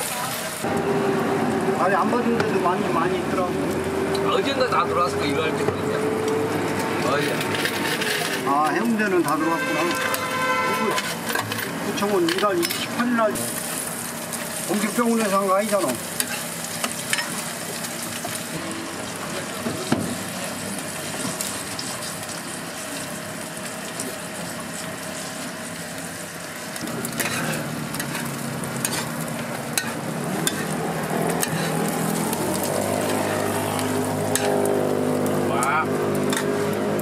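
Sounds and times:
metal spatula scraping griddle: 6.7 - 13.8, 26.8 - 35.4, 36.2 - 36.7
eggs sizzling in hot oil: 8.6 - 37.0.

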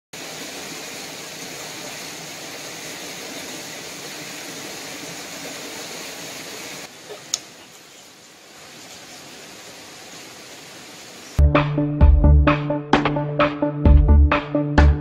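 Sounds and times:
rushing outdoor noise: 0.2 - 11.4.

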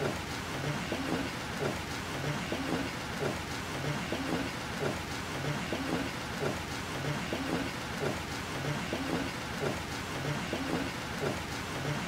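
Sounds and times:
steady rain: 0.0 - 12.0.

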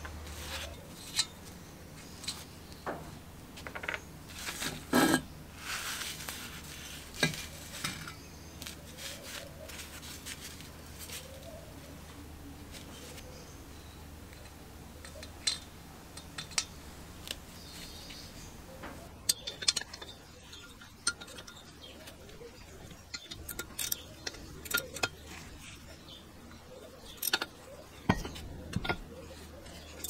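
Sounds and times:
metal tools clinking: 19.1 - 30.0.

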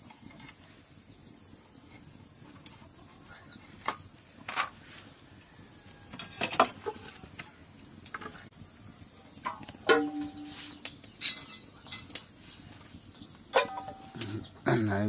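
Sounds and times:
metal plate knocking: 9.5 - 10.5.

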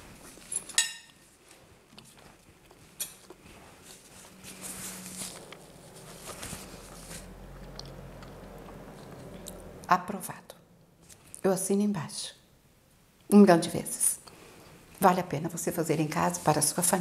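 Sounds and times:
cutlery clinking on a plate: 0.6 - 1.2
paper napkin rustling: 1.2 - 7.5, 15.8 - 17.0
biting and chewing: 1.5 - 9.7.

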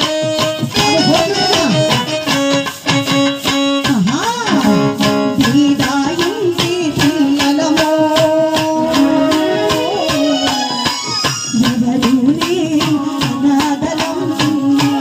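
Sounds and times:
hand drum: 0.0 - 15.0
woman singing into microphone: 3.9 - 15.0
long held notes: 4.4 - 7.4, 8.7 - 11.1.

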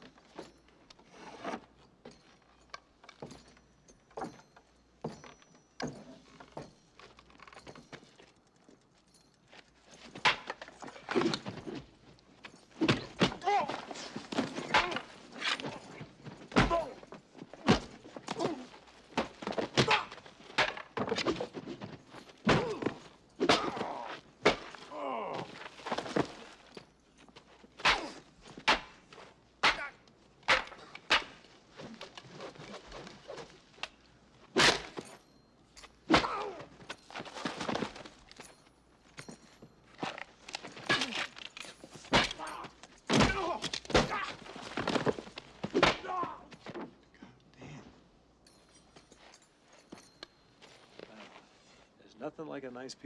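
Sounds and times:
men grunting and groaning: 13.4 - 15.2, 22.5 - 24.2, 24.8 - 25.7, 36.1 - 36.7, 42.3 - 44.4, 45.9 - 46.5.

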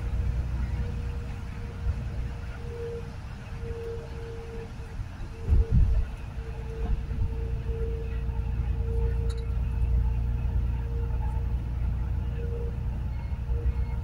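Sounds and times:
faint steady hum: 0.0 - 14.0
road rumble inside vehicle: 0.0 - 14.0.

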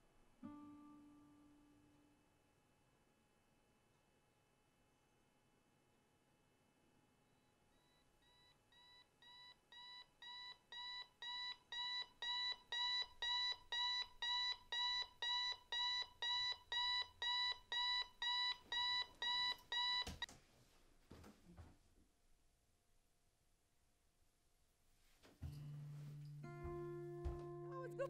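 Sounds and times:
alarm clock beeping: 8.2 - 20.3.

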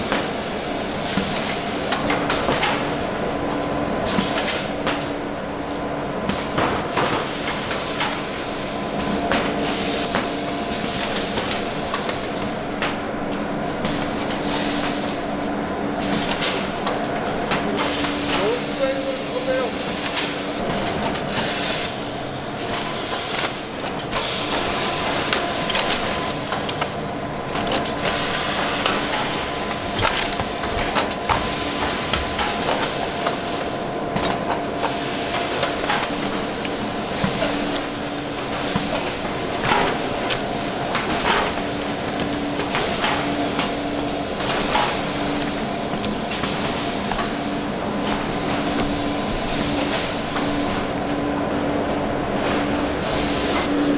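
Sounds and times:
machinery hiss and hum: 0.0 - 53.9
machine clicks and clacks: 1.0 - 3.2, 4.1 - 5.1, 6.2 - 15.2, 16.0 - 21.9, 22.6 - 47.4.

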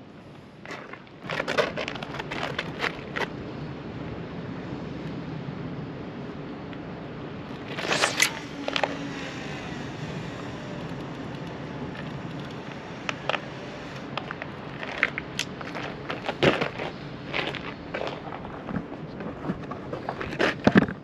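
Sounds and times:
sea: 0.0 - 21.0
wind: 0.0 - 21.0
fishing reel clicks and scrapes: 7.6 - 16.4.

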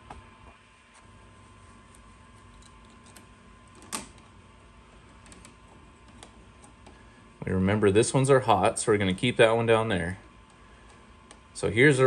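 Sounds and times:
clicks of wires being handled: 1.8 - 7.0, 10.2 - 11.6.

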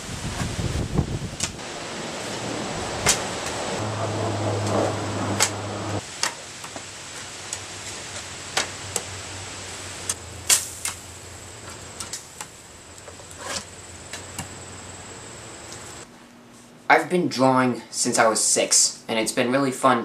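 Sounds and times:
low steady background noise: 1.6 - 20.0
arrows striking straw target: 10.4 - 11.1.

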